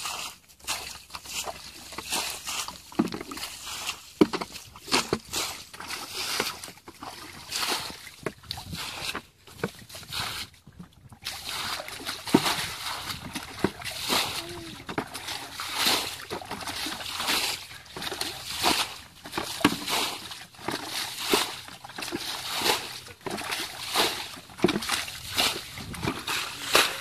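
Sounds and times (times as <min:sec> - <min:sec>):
water sloshing and splashing: 0:00.0 - 0:27.0
bucket knocking: 0:02.9 - 0:03.5, 0:04.2 - 0:08.6, 0:11.2 - 0:27.0.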